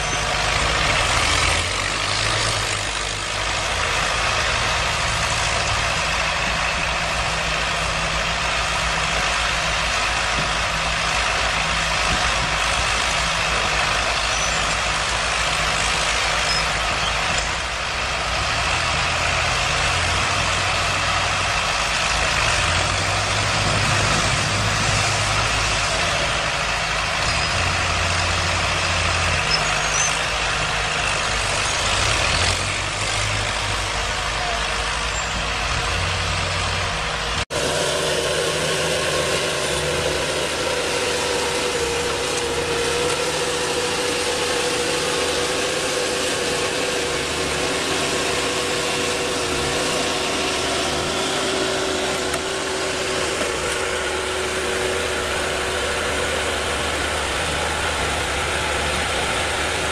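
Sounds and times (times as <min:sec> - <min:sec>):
heavy machine engine droning: 0:00.0 - 0:59.9.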